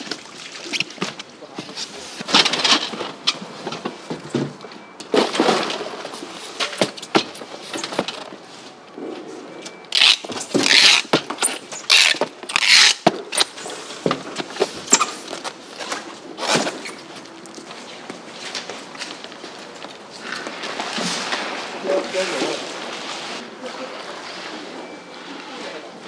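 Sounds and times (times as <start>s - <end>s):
boxes knocking and clattering: 1.0s - 8.4s, 10.2s - 13.3s
packing tape tearing from dispenser: 9.9s - 13.6s.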